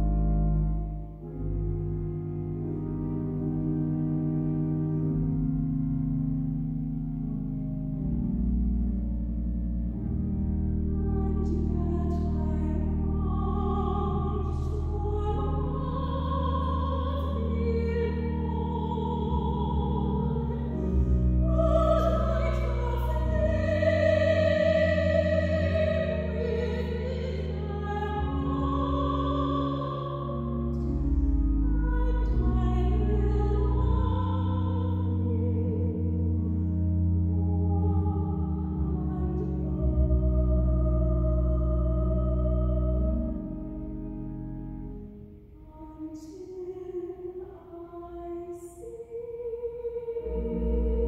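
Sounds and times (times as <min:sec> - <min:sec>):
low organ notes: 0:00.0 - 0:46.4
people singing with vibrato: 0:11.4 - 0:30.8.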